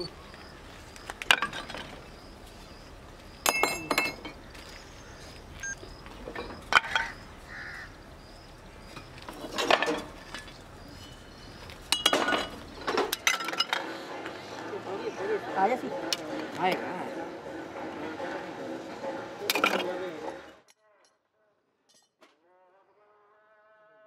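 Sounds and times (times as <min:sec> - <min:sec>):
cast iron clattering: 0:03.4 - 0:04.4, 0:09.3 - 0:10.5, 0:11.9 - 0:20.6.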